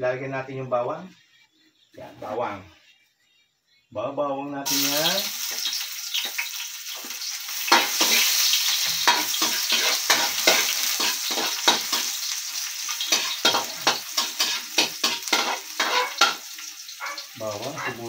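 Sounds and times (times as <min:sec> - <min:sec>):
garlic sizzling in hot oil: 0:04.6 - 0:18.0
metal spatula scraping wok: 0:05.4 - 0:16.9.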